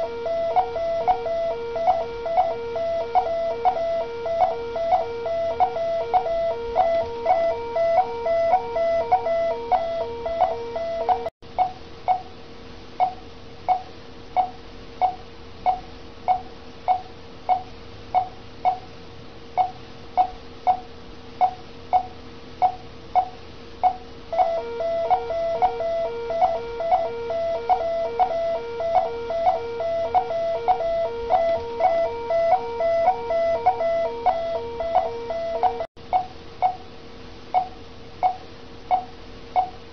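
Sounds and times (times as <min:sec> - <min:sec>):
pulsing alarm tone: 0:00.0 - 0:11.3, 0:24.3 - 0:35.9
patient monitor beeping: 0:00.0 - 0:12.3, 0:21.4 - 0:36.8.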